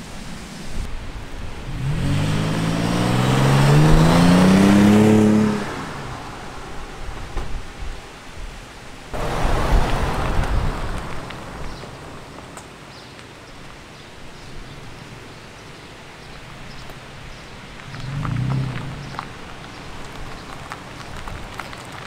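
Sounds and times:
car exhaust accelerating past: 1.7s - 7.8s, 17.8s - 19.5s
rough engine rumble: 17.8s - 21.6s.

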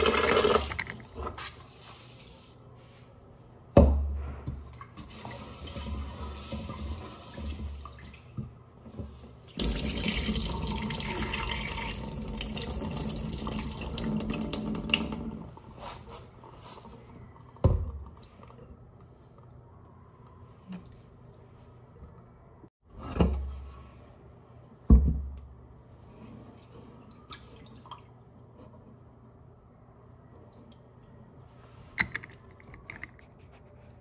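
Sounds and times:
water splashing into a steel sink: 9.5s - 15.4s.

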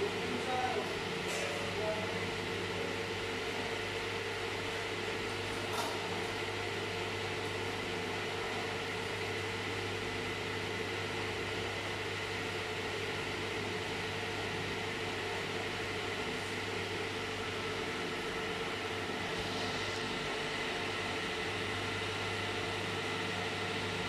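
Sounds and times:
machinery humming: 16.9s - 24.0s.

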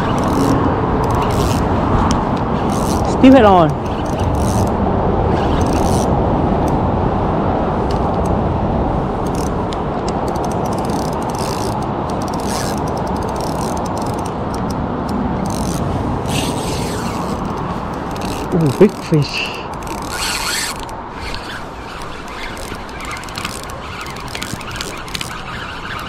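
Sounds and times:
fishing reel clicking and ratcheting: 0.0s - 1.7s, 2.6s - 4.7s, 5.4s - 6.1s, 9.2s - 9.6s, 10.2s - 26.0s
steady rushing noise: 0.0s - 26.0s.

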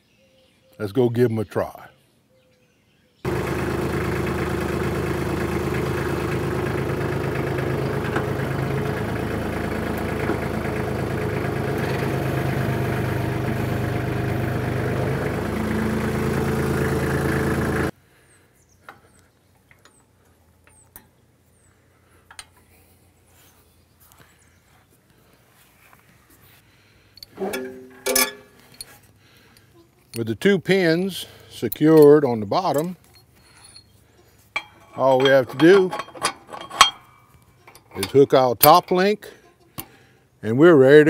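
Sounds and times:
tractor engine running: 3.3s - 18.0s, 27.2s - 29.4s, 30.1s - 39.2s.

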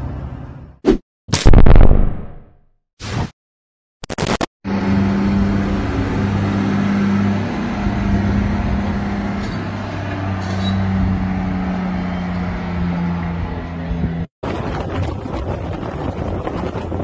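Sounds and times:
truck engine under heavy load: 4.7s - 17.0s.

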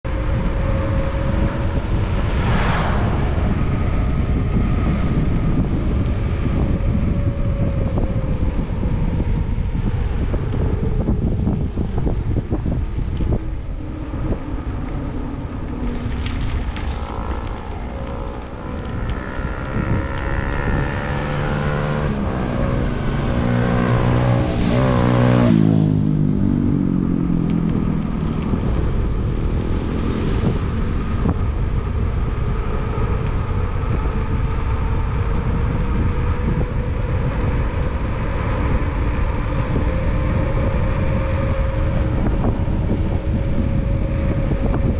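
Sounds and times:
vehicle engine passing: 0.0s - 8.0s, 8.8s - 32.6s
wind rush on microphone: 0.0s - 44.9s.

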